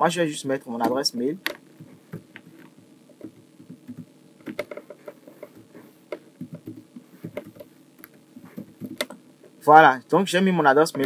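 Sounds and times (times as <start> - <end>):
keyboard typing: 0.8 - 9.2.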